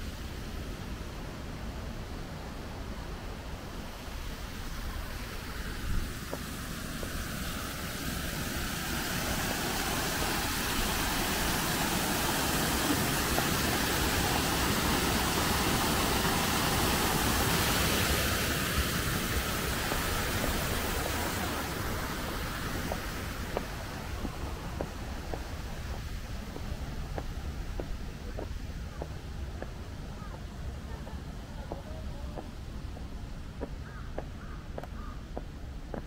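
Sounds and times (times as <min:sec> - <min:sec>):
waterfall splashing into pond: 0:03.6 - 0:30.5.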